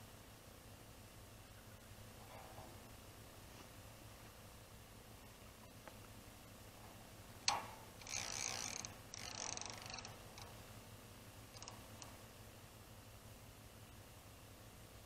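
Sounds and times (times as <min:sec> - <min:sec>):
fishing reel ratcheting rasps: 0:07.5 - 0:10.6, 0:11.5 - 0:12.1.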